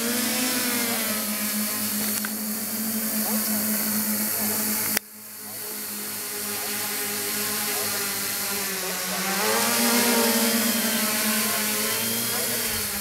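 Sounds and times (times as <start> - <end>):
quadcopter motors buzzing: 0.0 - 13.0
click: 2.1 - 2.4.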